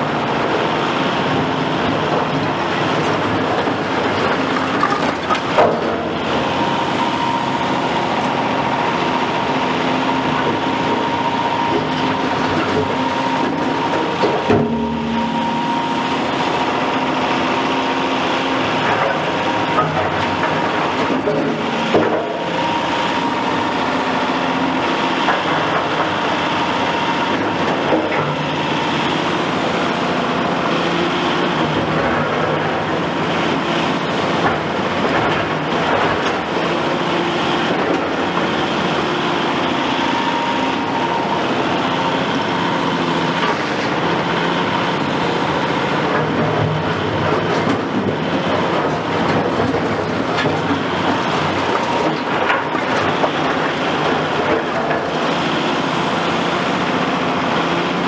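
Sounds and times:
excavator diesel engine running: 0.0 - 58.0
bucket scraping concrete rubble: 3.2 - 5.8.

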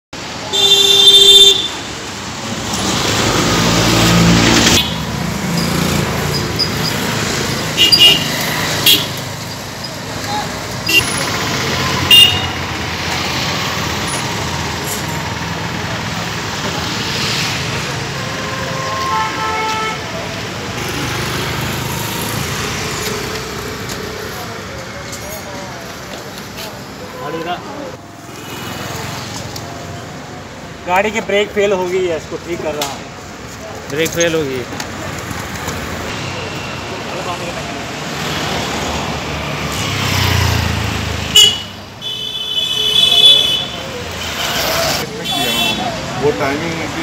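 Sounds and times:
street traffic: 0.1 - 47.0
vehicle horn: 0.5 - 1.8, 7.8 - 9.2, 12.0 - 12.6, 18.3 - 20.2, 41.3 - 44.6, 45.2 - 45.9
vehicle engine: 2.1 - 19.1, 20.1 - 30.8, 32.9 - 42.0.

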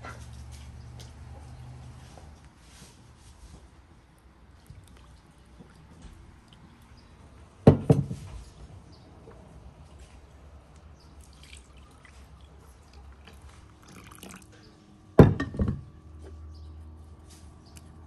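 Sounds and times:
loud knocks: 7.7 - 8.3
milk pouring into a bowl: 11.2 - 14.6.

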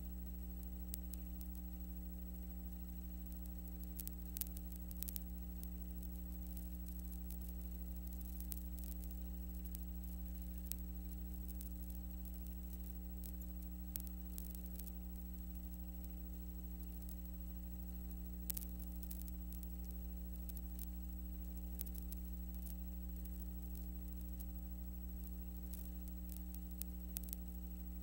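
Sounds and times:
electrical hum and hiss: 0.0 - 28.0.

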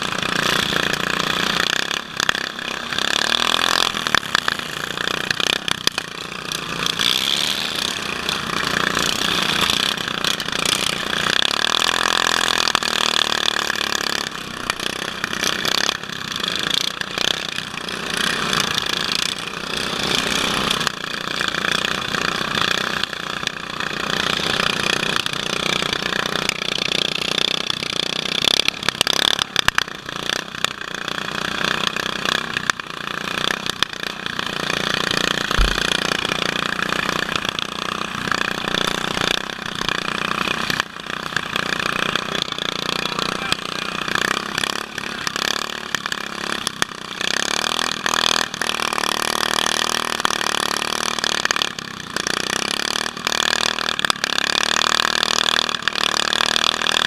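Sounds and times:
engine revving up and down: 0.0 - 20.9, 33.3 - 51.6
lawn tractor engines running hard: 0.0 - 57.0
mowers knocking and rattling: 0.0 - 57.0.

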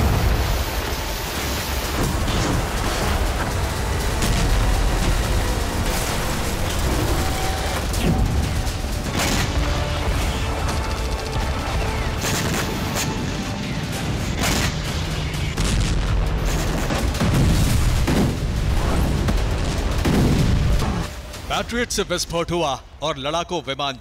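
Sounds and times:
heavy low rumble: 0.0 - 12.2
background music: 0.0 - 24.0
explosions booming: 15.6 - 21.1.

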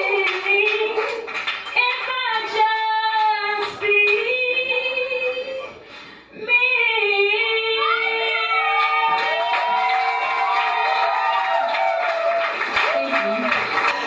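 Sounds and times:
woman singing: 0.0 - 1.2, 1.8 - 5.7, 6.4 - 9.2.

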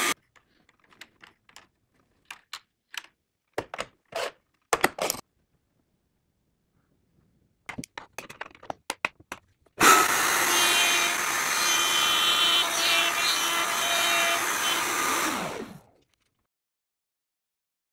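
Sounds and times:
router cutting wood: 9.8 - 15.9.

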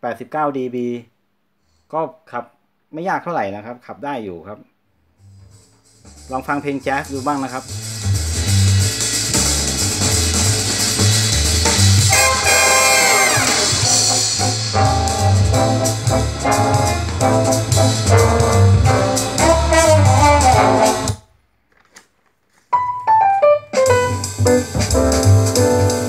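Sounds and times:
jazz band through speakers: 5.2 - 21.2, 22.8 - 26.0.

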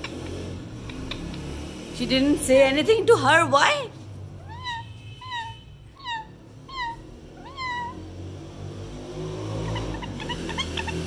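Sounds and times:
parrot calls: 4.4 - 8.1, 9.5 - 11.0.

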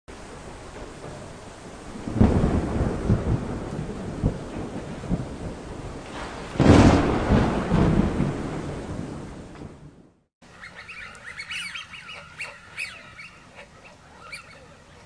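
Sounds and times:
thunder rumbling and cracking: 0.1 - 10.3.

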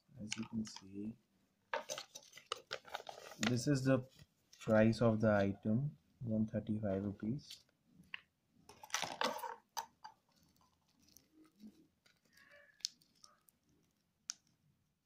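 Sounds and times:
plastic packet crinkling: 1.9 - 3.6, 10.3 - 14.4.

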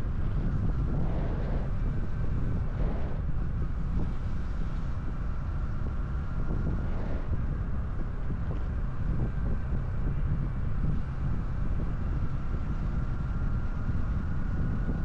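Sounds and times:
wind noise on microphone: 0.0 - 15.0.

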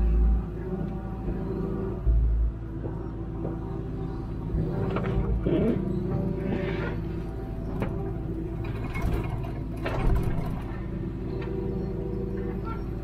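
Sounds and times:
diesel engine running: 0.0 - 13.0
excavator bucket knocks and clanks: 7.7 - 10.8.

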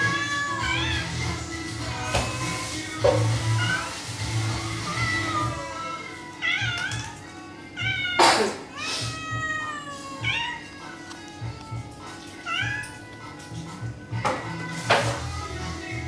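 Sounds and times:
kitten meowing: 0.0 - 1.2, 7.8 - 10.7, 12.5 - 13.0.

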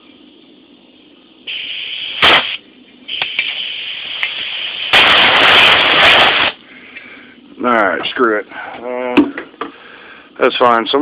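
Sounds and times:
compressed air blow gun hissing: 1.5 - 6.6.

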